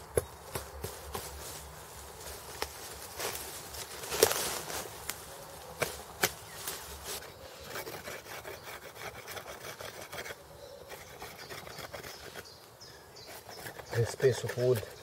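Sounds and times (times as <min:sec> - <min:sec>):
stone flake rasping across wood: 0:07.7 - 0:12.5, 0:13.2 - 0:14.9.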